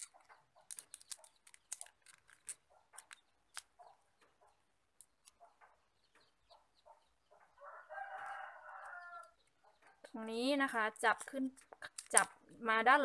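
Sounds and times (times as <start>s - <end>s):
plastic straw crinkling and clicking: 0.0s - 5.8s, 10.9s - 12.6s.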